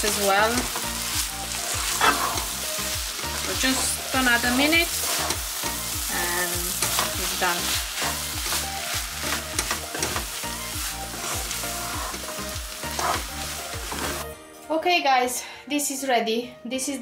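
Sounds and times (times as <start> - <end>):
rice sizzling in a wok: 0.0 - 14.4
wooden spatula scraping pan: 4.9 - 5.4, 11.1 - 14.3.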